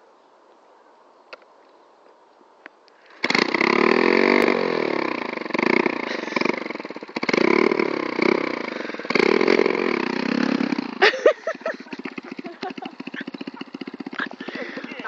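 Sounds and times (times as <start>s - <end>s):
small motorcycle engine revving: 3.0s - 15.0s.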